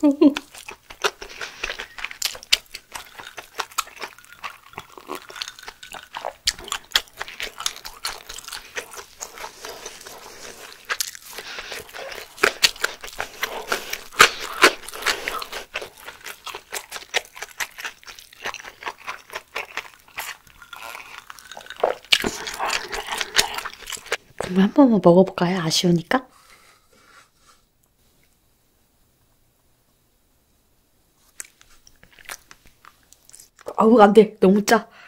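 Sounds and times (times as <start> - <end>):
chewing with wet crunches: 0.4 - 24.5.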